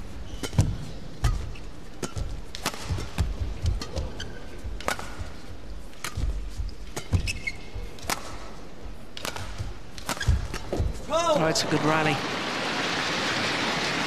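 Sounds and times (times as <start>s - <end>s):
shoes squeaking on court: 0.0s - 11.1s
arena ambience: 0.0s - 14.0s
racket hitting shuttlecock: 0.3s - 11.1s.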